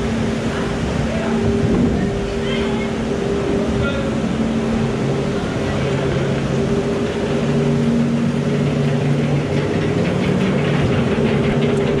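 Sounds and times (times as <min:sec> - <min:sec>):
conveyor machinery humming: 0:00.0 - 0:12.0.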